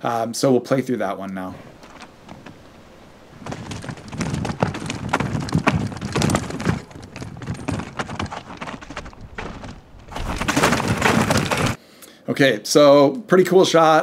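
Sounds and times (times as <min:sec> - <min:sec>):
tyres crunching over dirt and rock: 0:01.6 - 0:11.8
bike knocking and rattling: 0:01.7 - 0:11.8.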